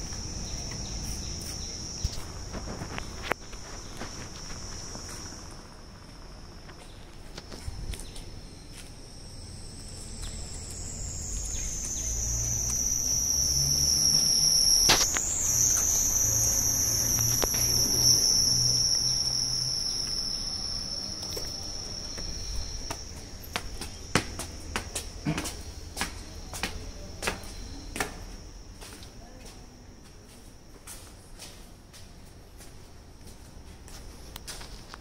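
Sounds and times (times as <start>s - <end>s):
low hum: 0.0s - 25.9s
insects droning: 0.0s - 35.0s.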